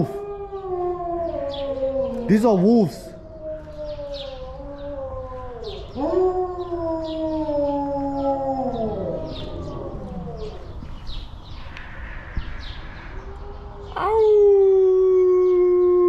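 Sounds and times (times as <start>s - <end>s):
wolf howling: 0.0s - 10.8s, 13.0s - 16.0s.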